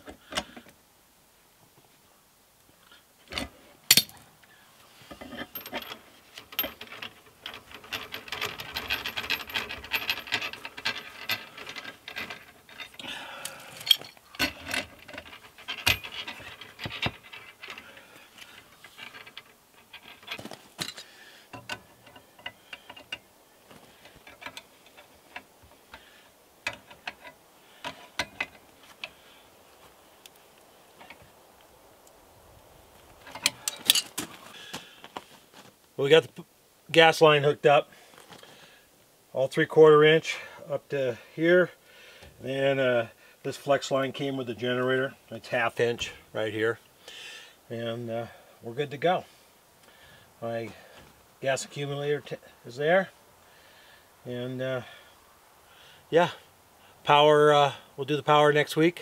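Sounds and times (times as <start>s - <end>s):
steel clanking on steel: 3.4s - 4.2s, 5.2s - 23.2s.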